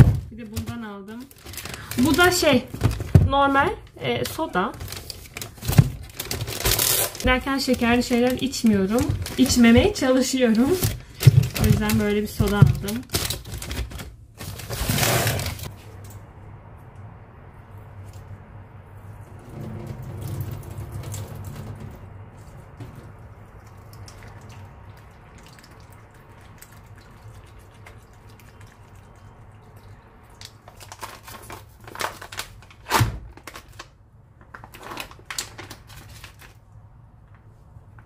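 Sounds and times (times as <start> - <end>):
plastic packet crackling: 0.6 - 15.7, 30.4 - 36.6
liquid pouring onto steel sink: 19.4 - 22.0.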